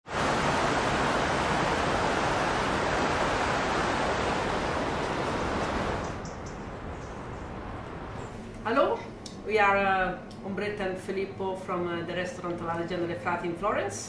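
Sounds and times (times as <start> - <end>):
steady rushing noise: 0.0 - 9.8.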